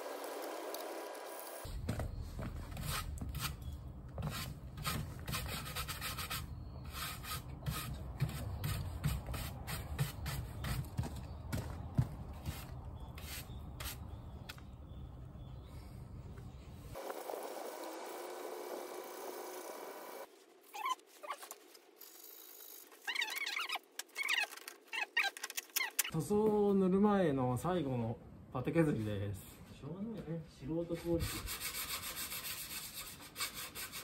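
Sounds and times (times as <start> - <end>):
hand sanding strokes: 4.2 - 11.0, 12.4 - 14.1, 30.8 - 34.0.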